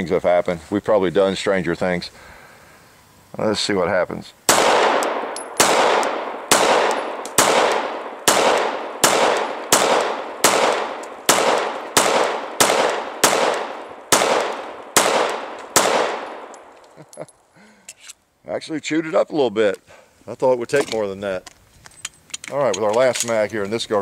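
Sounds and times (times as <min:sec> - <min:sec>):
pistol shots with echo: 0:04.5 - 0:16.7.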